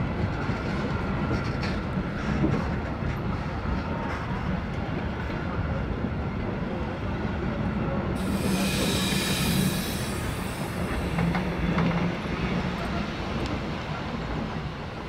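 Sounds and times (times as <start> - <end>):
wheels rumbling on rail: 0.0 - 15.0
high hissing: 8.2 - 11.7.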